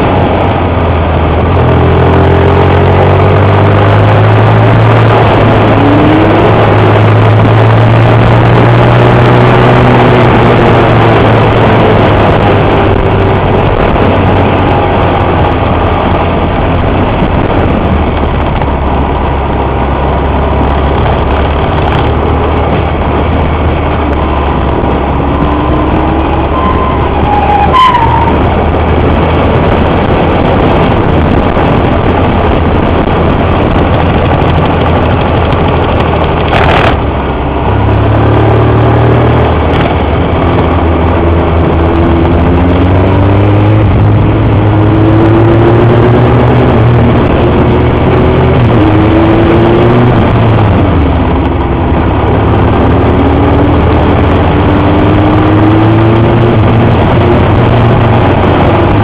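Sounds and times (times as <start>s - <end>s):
wind rushing over microphone: 0.0s - 59.0s
motorcycle engine running: 28.3s - 59.0s.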